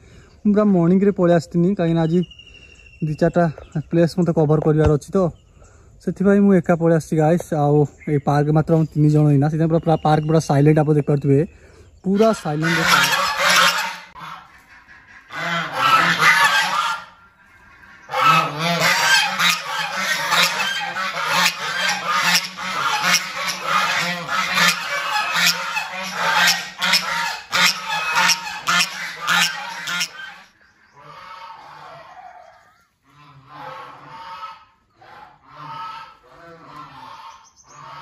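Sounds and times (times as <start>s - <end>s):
geese honking: 12.0s - 38.0s.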